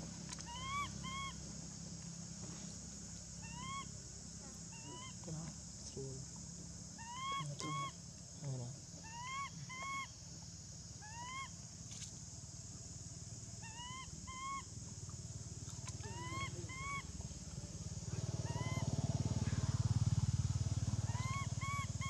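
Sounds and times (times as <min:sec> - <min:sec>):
baby monkey cooing: 0:16.0 - 0:17.1.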